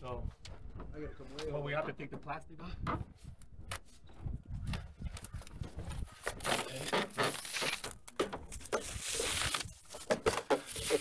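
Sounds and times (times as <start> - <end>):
plastic wrapping crinkling and tearing: 6.2 - 10.0.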